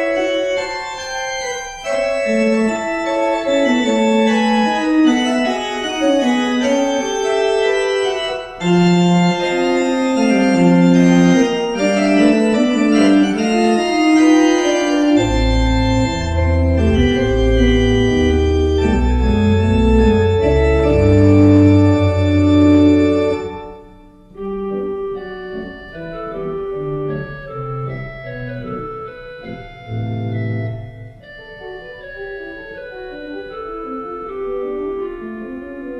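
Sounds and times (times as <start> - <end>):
pipe organ chords: 0.0 - 35.9
deep pedal bass notes: 10.1 - 23.6, 26.3 - 31.3.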